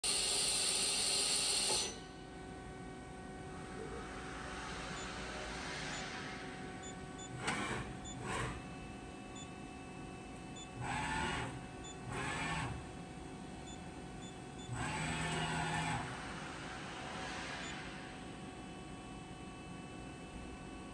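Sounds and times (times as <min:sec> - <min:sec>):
machine hum: 0:00.1 - 0:20.9
whirring axis drives: 0:03.6 - 0:08.9, 0:14.6 - 0:18.3.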